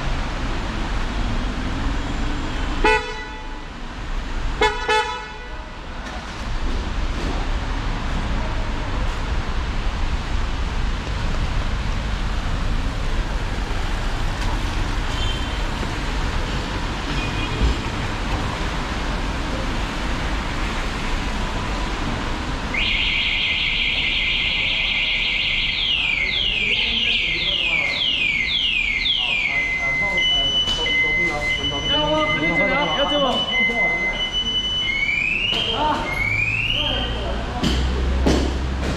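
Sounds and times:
city street noise: 0.0 - 38.9
car alarm: 22.7 - 37.4.

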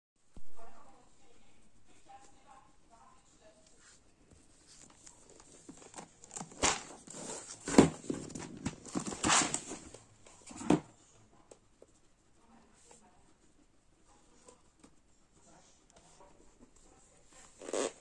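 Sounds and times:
cardboard box rubbing and rustling: 6.6 - 9.9.

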